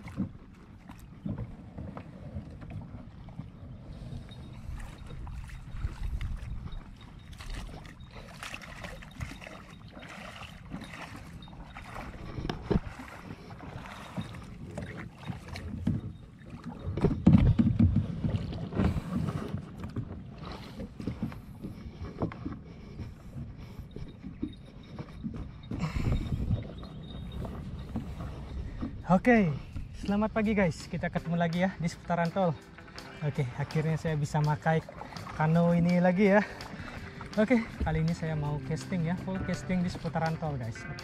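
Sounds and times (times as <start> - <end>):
paddle movements: 0.0 - 41.0
water splashing around kayak hull: 0.0 - 41.0
knocks on kayak: 17.0 - 18.4.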